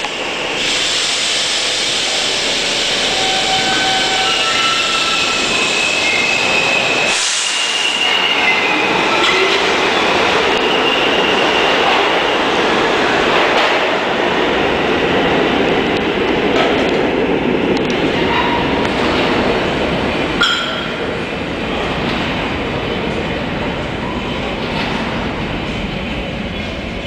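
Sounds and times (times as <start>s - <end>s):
subway train rumble: 0.0s - 27.0s
train wheels squealing: 2.1s - 12.3s.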